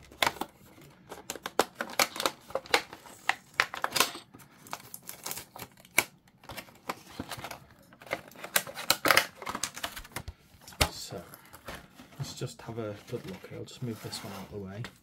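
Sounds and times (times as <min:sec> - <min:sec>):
plastic packaging clicks and crinkles: 0:00.0 - 0:13.6.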